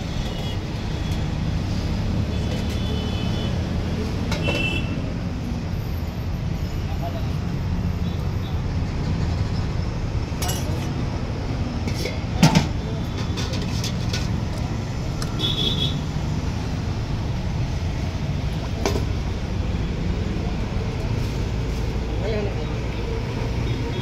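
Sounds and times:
low rumble of road traffic: 0.0 - 24.0
ladle clinking against metal pots: 10.4 - 10.9.

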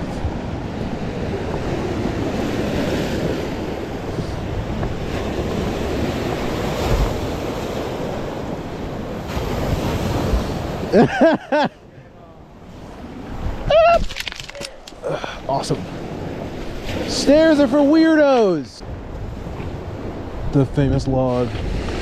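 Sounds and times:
wind buffeting microphone: 0.0 - 10.9, 12.7 - 14.6, 15.6 - 22.0
waves washing onto rocky shore: 15.5 - 18.6.

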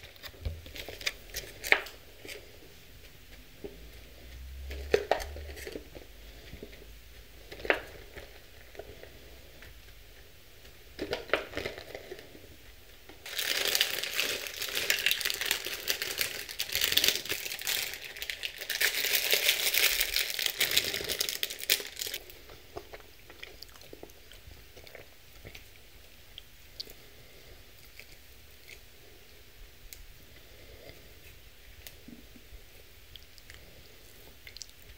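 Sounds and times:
plastic tearing: 0.0 - 2.4, 13.2 - 22.3
plastic packaging crackling: 0.0 - 2.5, 11.0 - 12.4, 13.2 - 22.4
taps and rustles of toppings: 0.0 - 25.7.

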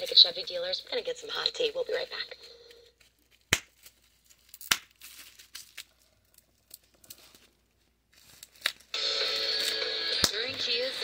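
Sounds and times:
rustling and crinkling: 2.4 - 9.0.

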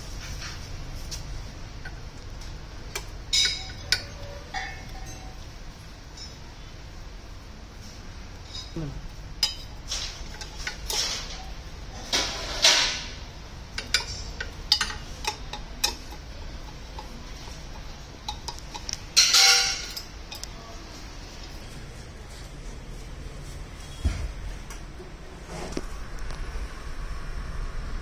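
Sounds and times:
metal ringing clatter: 3.3 - 5.4, 13.8 - 20.5.

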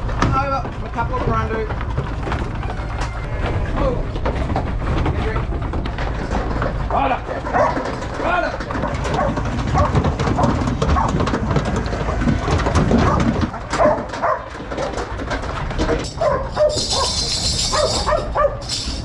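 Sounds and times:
hooves knocking on wooden floor: 0.0 - 19.0
dog barking: 7.5 - 7.8, 9.1 - 11.2, 13.0 - 14.5, 16.2 - 18.7.

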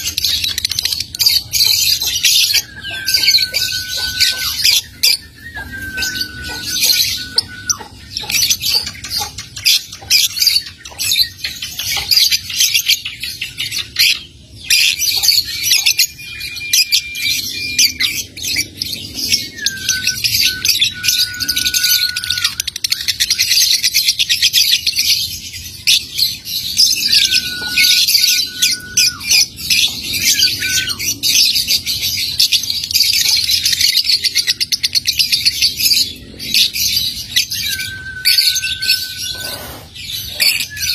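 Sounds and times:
lovebird chattering: 0.0 - 12.6
short whistle-like bird notes: 2.6 - 8.0.

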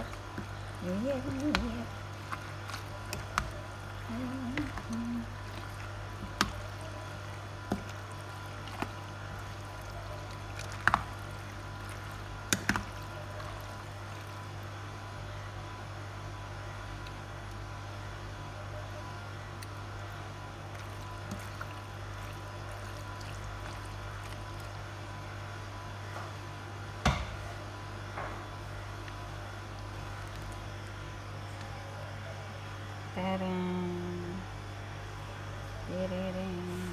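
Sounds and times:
steady low hum: 0.0 - 36.9
spoon squishing salad: 1.3 - 14.5, 20.7 - 24.8.

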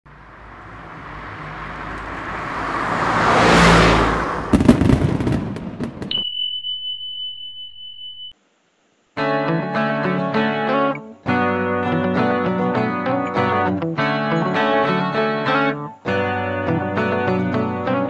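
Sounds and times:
rising whoosh: 0.4 - 6.0
crackling burst with clicks: 4.5 - 6.2
high beep: 6.1 - 8.3.

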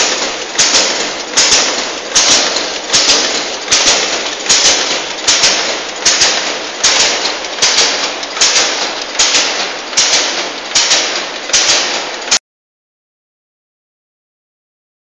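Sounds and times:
packaging machine clacking: 0.0 - 12.4.

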